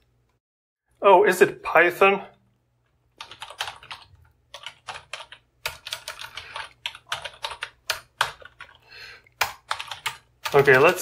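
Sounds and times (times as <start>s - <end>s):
computer keyboard key clicks: 3.2s - 8.8s, 9.4s - 11.0s.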